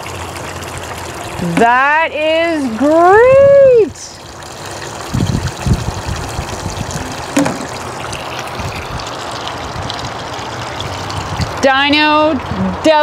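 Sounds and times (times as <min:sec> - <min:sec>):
water splashing from a pipe: 0:00.0 - 0:13.0
brief knock: 0:07.4 - 0:07.7.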